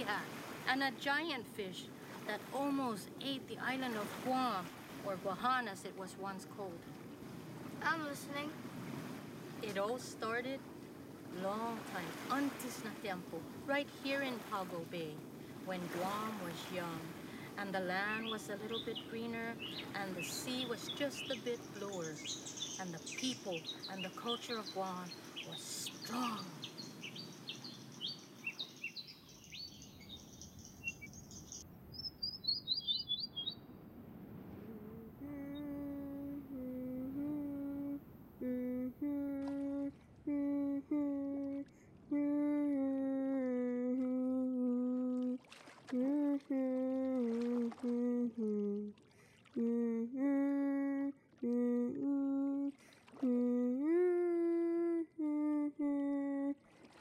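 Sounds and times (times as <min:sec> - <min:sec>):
birds chirping: 0:11.3 - 0:33.7
woman humming a melody: 0:34.6 - 0:49.0, 0:49.6 - 0:56.6.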